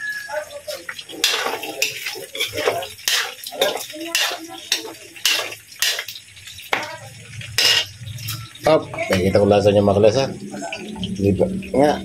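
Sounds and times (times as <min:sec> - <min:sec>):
metal spatula scraping a wok: 0:00.9 - 0:06.2, 0:07.6 - 0:08.4.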